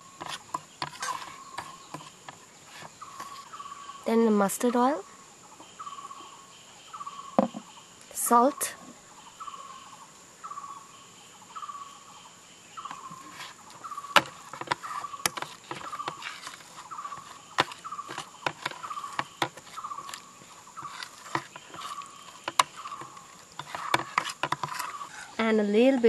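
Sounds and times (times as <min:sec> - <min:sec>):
high insect drone: 0:00.0 - 0:26.0
metal spoon scraping ceramic bowl: 0:20.8 - 0:25.4.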